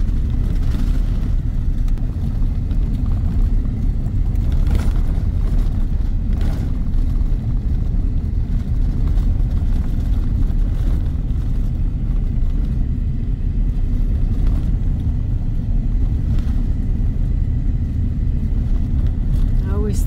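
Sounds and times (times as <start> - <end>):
car driving at highway speed: 0.0 - 20.0.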